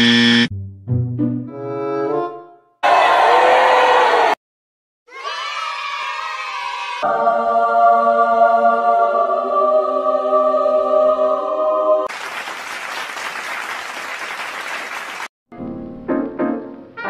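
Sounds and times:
choir singing a held chord: 7.0s - 12.1s
applause: 12.1s - 15.3s.

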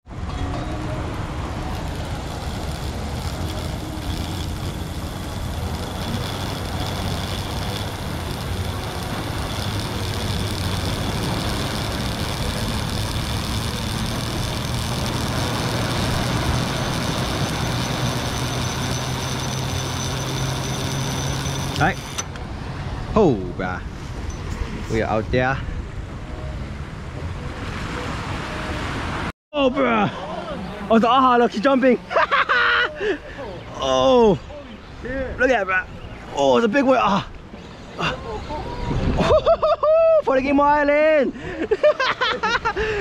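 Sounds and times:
drone humming in flight: 0.2s - 22.4s
surf on rocks: 1.6s - 22.2s.

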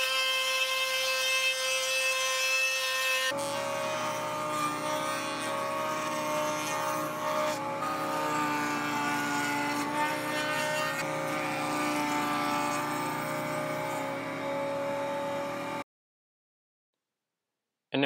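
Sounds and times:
router motor whine: 0.0s - 15.8s.

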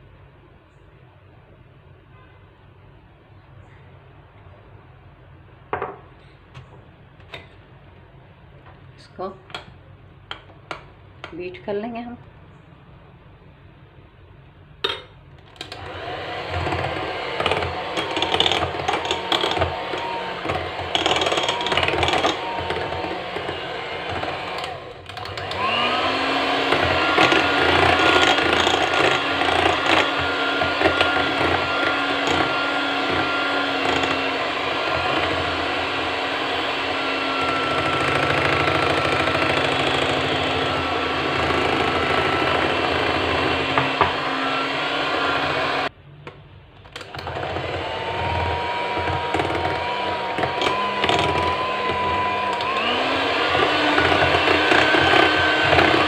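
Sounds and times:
electric hand mixer whirring: 15.6s - 45.9s, 47.0s - 56.0s.

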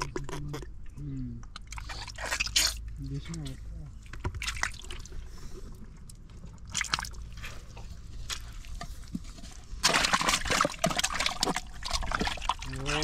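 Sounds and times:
hand sloshing in muddy water: 6.7s - 13.0s.

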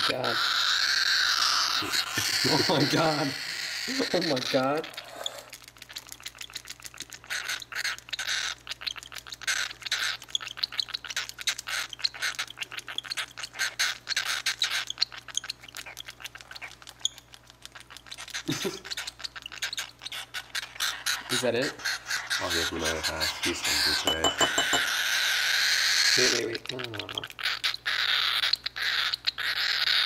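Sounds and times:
baby bird raspy begging chirps: 0.0s - 30.0s.

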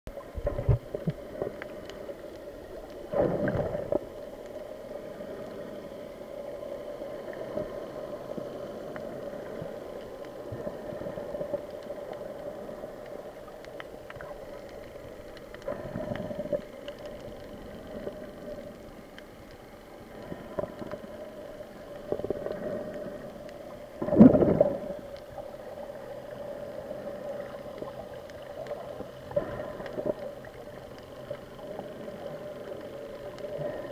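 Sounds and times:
muffled underwater hum: 0.1s - 33.9s
water noise swells: 0.1s - 33.9s.

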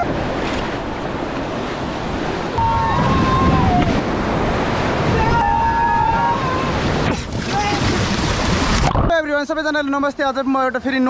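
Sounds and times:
river rapids roaring: 0.0s - 9.0s
wind buffeting microphone: 2.0s - 9.1s.

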